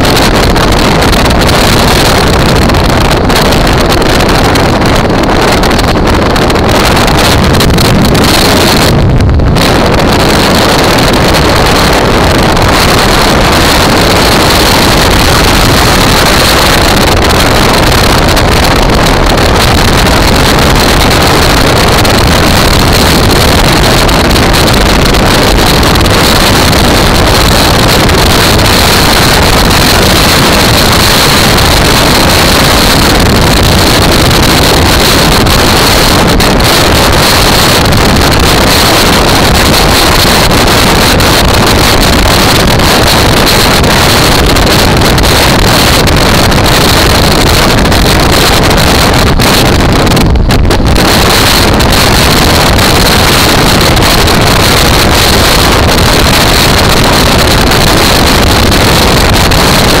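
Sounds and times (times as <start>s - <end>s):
motorcycle running: 0.0s - 60.0s
road noise: 0.0s - 60.0s
wind rushing over microphone: 0.0s - 60.0s.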